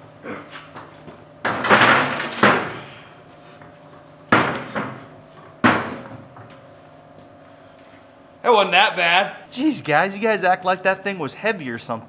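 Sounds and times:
generator banging onto workbench: 1.4 - 2.8, 4.3 - 5.0, 5.6 - 6.2.

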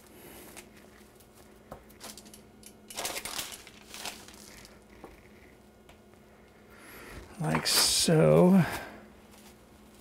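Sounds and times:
plastic cling wrap crinkling: 2.9 - 4.9.

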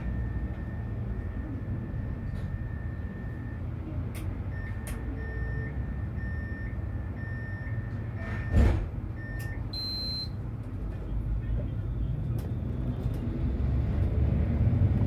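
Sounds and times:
beeping signal: 0.0 - 3.8, 4.4 - 10.4
tram rumbling: 0.0 - 6.2, 10.4 - 15.0
loud thump: 8.5 - 8.9.

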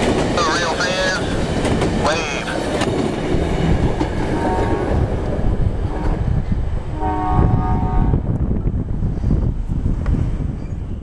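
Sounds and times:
passenger train rumbling: 0.0 - 11.0
train horn chord: 4.4 - 5.0, 5.9 - 6.3, 6.9 - 8.2.

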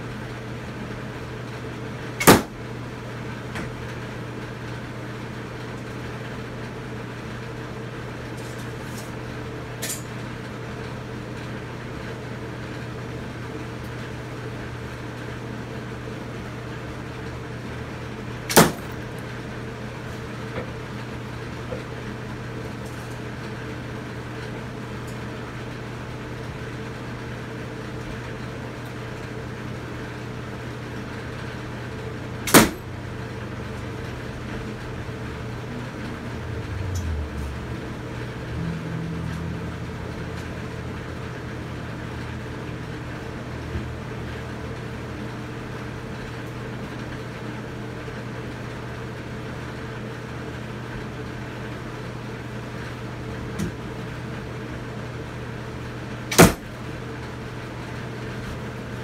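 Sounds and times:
arrows striking cardboard target: 2.2 - 2.6, 18.5 - 18.9, 32.5 - 32.8, 56.3 - 56.7
steady low hum: 30.5 - 46.2.

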